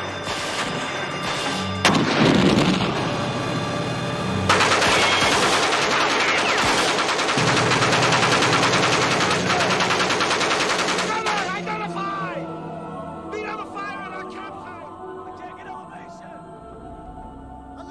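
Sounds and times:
low hum: 0.2 - 4.8
loud sudden blast: 1.8 - 3.4
machine-gun fire: 4.5 - 11.5.

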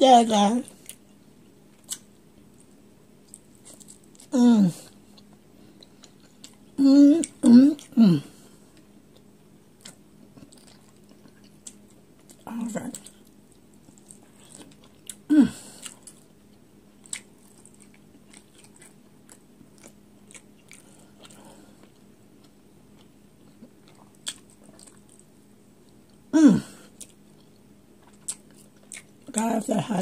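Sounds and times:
person chewing food: 0.7 - 29.5
low voiced grunt: 15.3 - 15.6, 26.4 - 26.8.

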